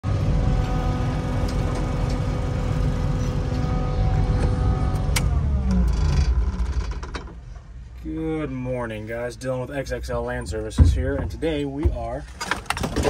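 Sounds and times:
loader engine running with whine: 0.0 - 7.9.

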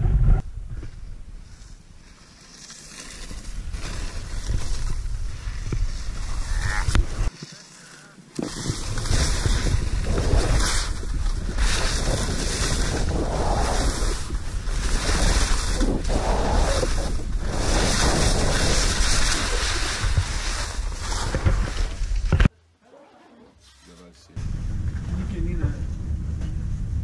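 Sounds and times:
skis scraping over snow: 1.4 - 22.3
wind buffeting microphone: 8.4 - 22.4.

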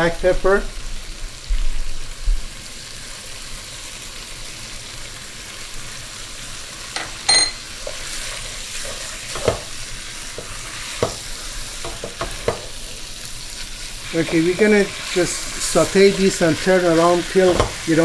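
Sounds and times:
meat and onions sizzling: 0.0 - 18.0
ringing clink: 7.3 - 7.6
wooden spoon knocking on pan: 9.3 - 9.7, 10.4 - 11.2, 11.8 - 12.7.

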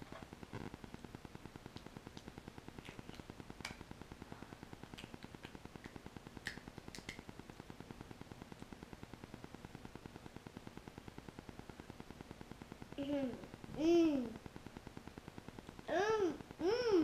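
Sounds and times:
child eating clicks and taps: 1.7 - 3.9, 4.8 - 7.3.

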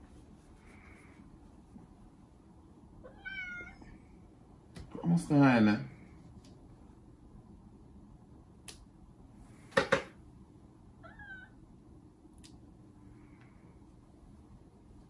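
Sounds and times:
cat meowing faintly: 3.0 - 4.0, 11.0 - 11.6.

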